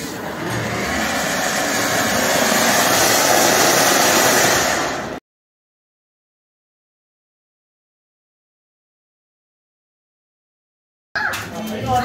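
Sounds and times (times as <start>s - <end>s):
firework fountain hissing: 0.0s - 5.2s.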